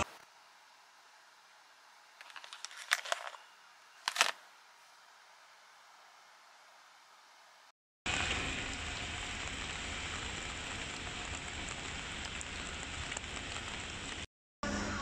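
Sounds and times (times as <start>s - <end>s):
rain on car windscreen: 10.4s - 14.3s.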